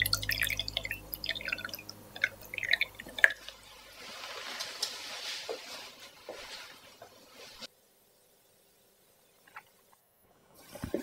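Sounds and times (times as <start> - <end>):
drips: 0.0 - 3.8.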